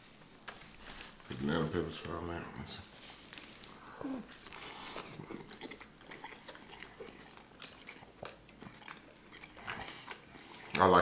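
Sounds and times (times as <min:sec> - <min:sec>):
biting and chewing food: 0:03.2 - 0:11.0.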